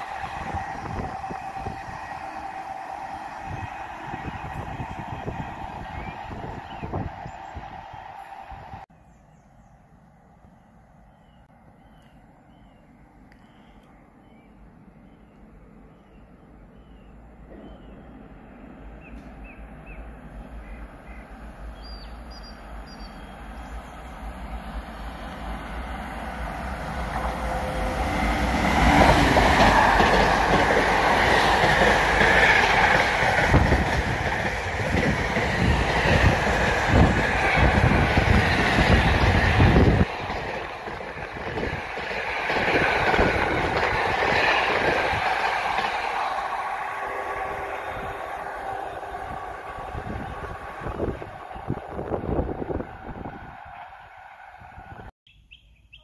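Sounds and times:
freight train rumble: 0.0 - 55.1.

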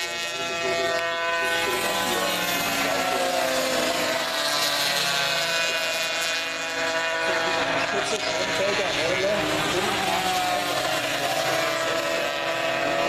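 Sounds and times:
racing motorcycles at high revs: 0.0 - 13.0.

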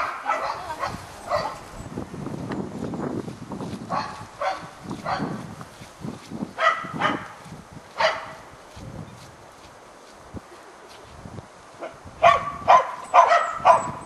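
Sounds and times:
dog barking: 0.0 - 1.6, 3.9 - 5.4, 6.6 - 7.3, 8.0 - 8.4, 11.8 - 14.0.

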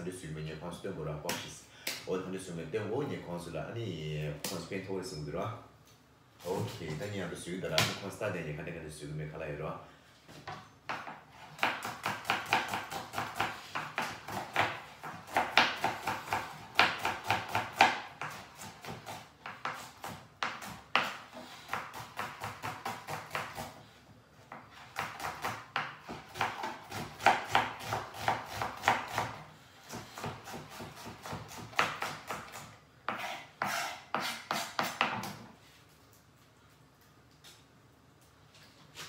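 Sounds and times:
knife chopping on cutting board: 10.9 - 23.8, 24.5 - 35.5.

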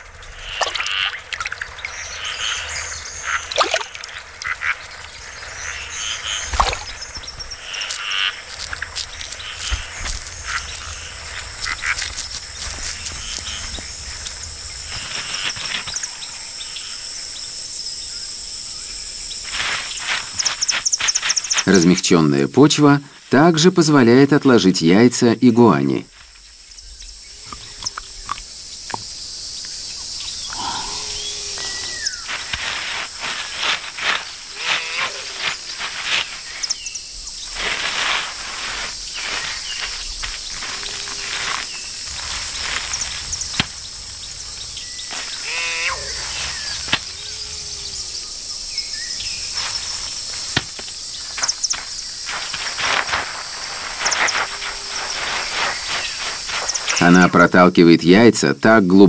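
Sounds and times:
insects chorus: 0.0 - 59.0
iguana scratching in soil: 1.9 - 16.2, 19.3 - 22.5, 30.6 - 57.4.

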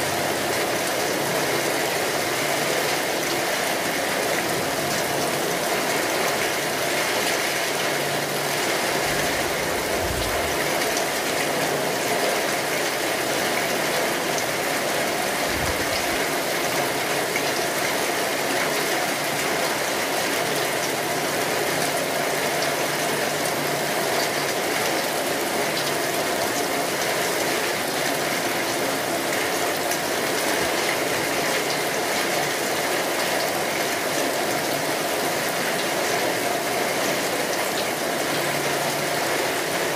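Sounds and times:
steady rain falling: 0.0 - 39.9
low rumbles: 9.0 - 11.2.

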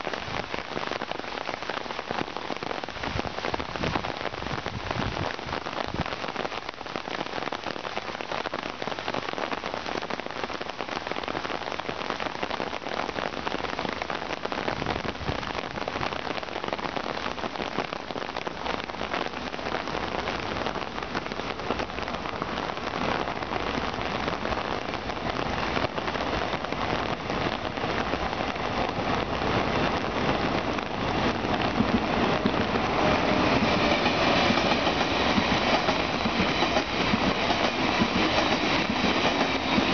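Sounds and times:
steady rain on foliage: 0.0 - 39.9
high-speed train rumbling past: 27.4 - 39.9.

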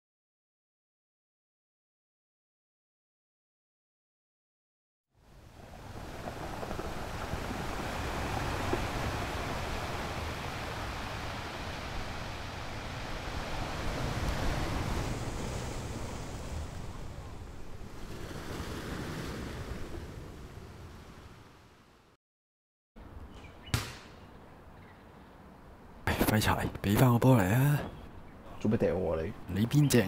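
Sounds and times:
wind: 5.1 - 22.2, 23.0 - 30.0
waves lapping: 5.4 - 21.8.

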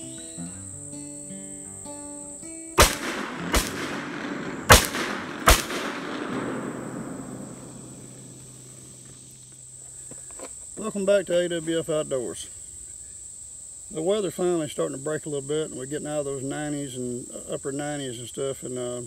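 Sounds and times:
high insect chirr: 0.0 - 19.0
revolver gunshots: 2.8 - 9.1.

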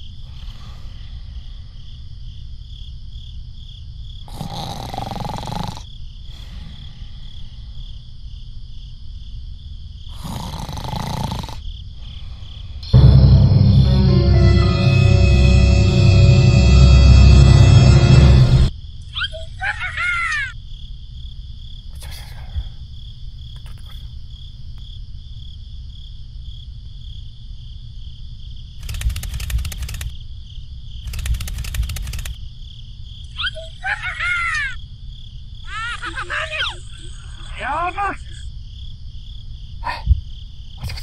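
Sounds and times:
insects chirring: 0.0 - 13.6, 15.8 - 41.0
low rumble: 12.8 - 18.7
music: 12.8 - 18.7.

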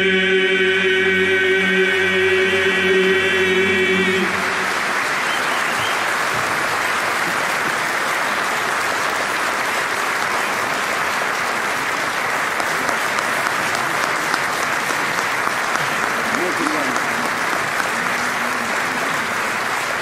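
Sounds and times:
audience applauding: 2.5 - 20.0
individual claps: 4.6 - 20.0.

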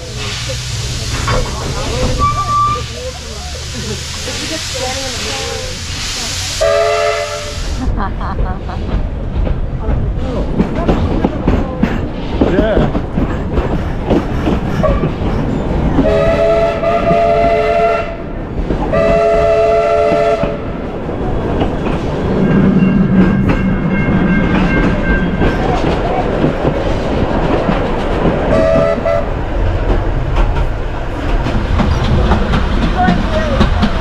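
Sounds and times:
carriages clattering on track: 0.0 - 6.7, 7.7 - 34.0
steam locomotive chime whistle: 2.2 - 3.0, 6.6 - 7.7.

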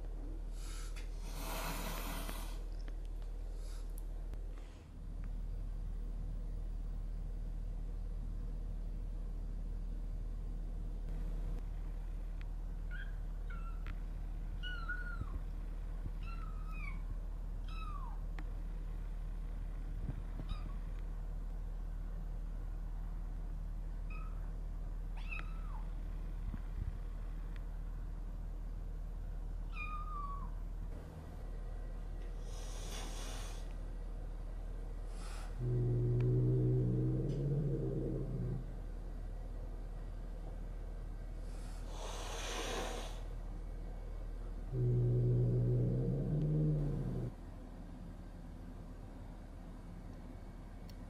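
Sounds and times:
steady low hum: 0.0 - 51.0
cat hissing: 32.4 - 33.7, 41.7 - 43.2.

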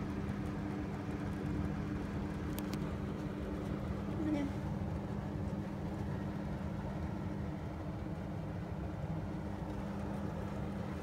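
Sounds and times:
steady two-tone hum: 0.0 - 11.0.

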